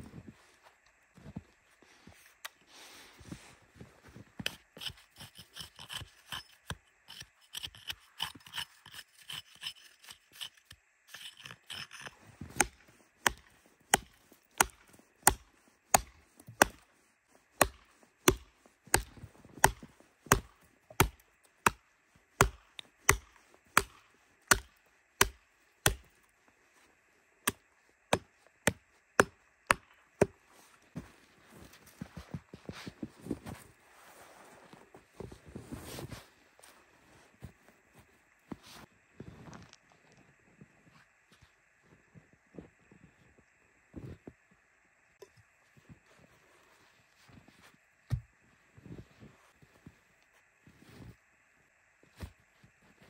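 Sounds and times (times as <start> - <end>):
hatchet chopping into log: 12.6 - 16.8, 17.6 - 21.8, 22.4 - 26.1, 27.5 - 30.3.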